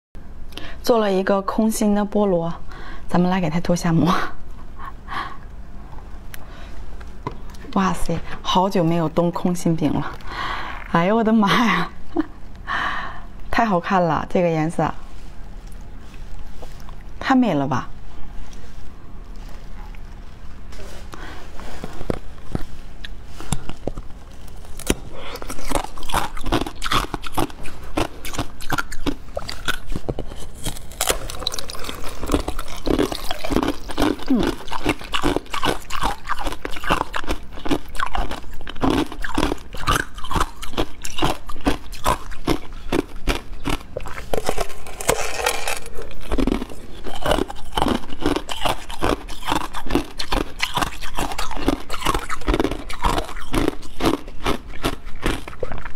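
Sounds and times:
crunchy treat being chewed: 15.6s - 17.2s, 18.4s - 55.9s.

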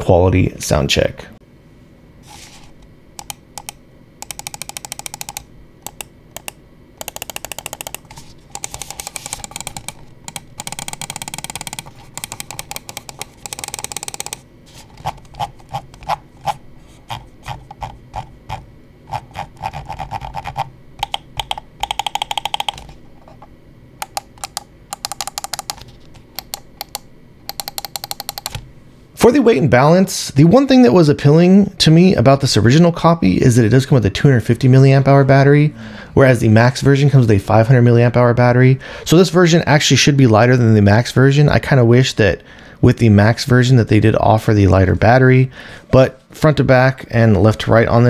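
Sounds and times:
mouse buttons clicking: 3.2s - 14.4s, 19.9s - 23.4s, 24.0s - 28.6s.

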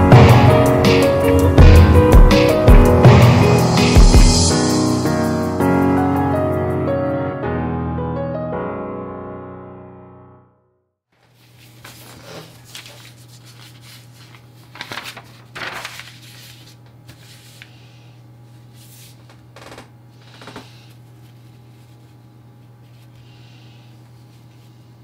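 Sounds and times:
piano music: 0.0s - 10.7s
paper rustling and sliding: 11.2s - 18.0s, 18.6s - 19.4s.

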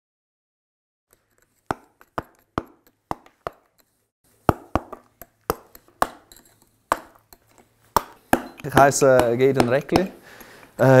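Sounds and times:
mallet striking chisel into stone: 1.6s - 10.2s.

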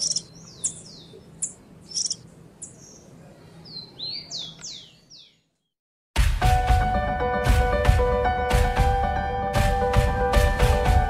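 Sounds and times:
small songbird chirping: 0.0s - 5.7s.

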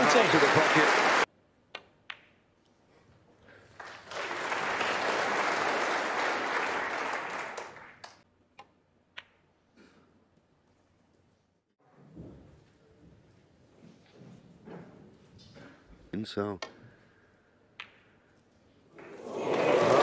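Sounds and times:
audience applause: 0.0s - 1.3s, 3.6s - 8.2s, 19.0s - 20.0s
snooker balls clicking: 1.6s - 2.8s, 8.5s - 9.5s, 17.7s - 18.4s.

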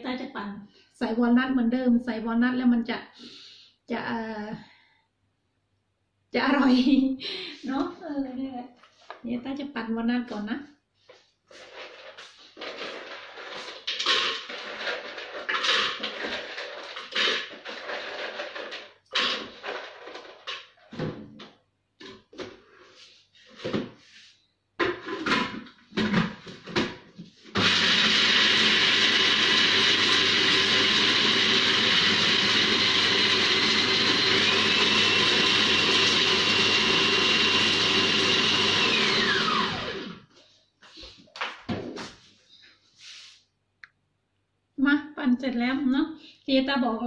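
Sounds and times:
blender motor whine chopping nuts: 12.7s - 20.7s, 27.5s - 40.3s.

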